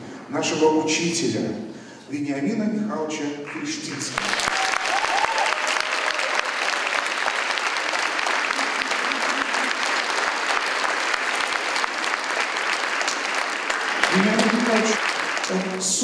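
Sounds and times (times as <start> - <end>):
audience applauding: 3.5 - 16.0.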